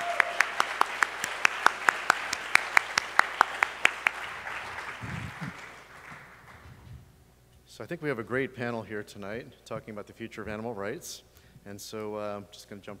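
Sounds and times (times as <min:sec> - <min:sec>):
person clapping close to microphone: 0:00.0 - 0:06.7
audience applause: 0:00.0 - 0:06.8
microphone handling rumble: 0:05.0 - 0:05.6, 0:06.6 - 0:07.2.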